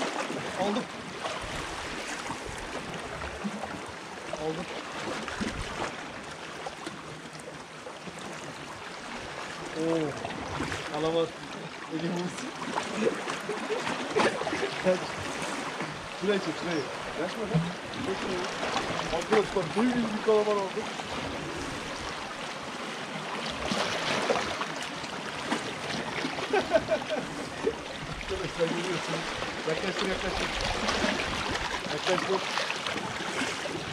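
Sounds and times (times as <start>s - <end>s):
sea water washing against rocks: 11.9s - 33.9s.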